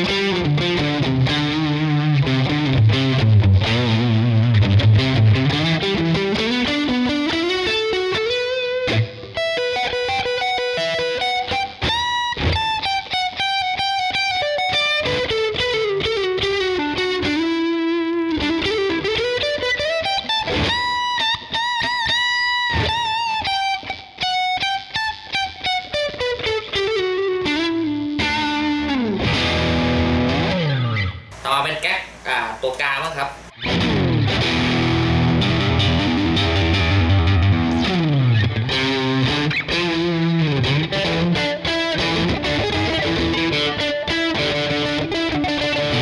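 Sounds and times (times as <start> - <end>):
distorted electric guitar solo: 0.0 - 46.0.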